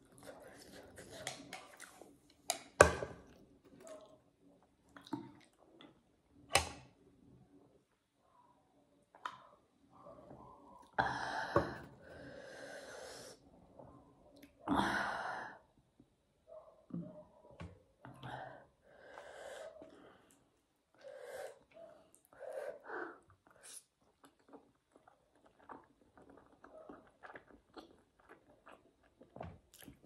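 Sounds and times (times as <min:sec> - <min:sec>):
eating mouth sounds: 0:23.4 - 0:30.0.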